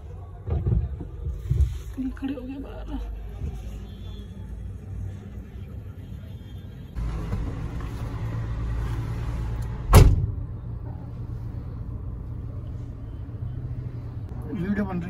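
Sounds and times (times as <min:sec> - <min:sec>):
vehicle engine rumbling: 0:06.8 - 0:15.0
loud thump: 0:09.9 - 0:10.4.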